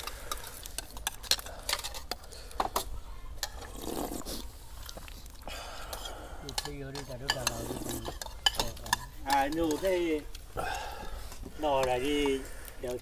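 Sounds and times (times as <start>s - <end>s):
spoons clinking on ceramic plates: 5.9s - 10.8s.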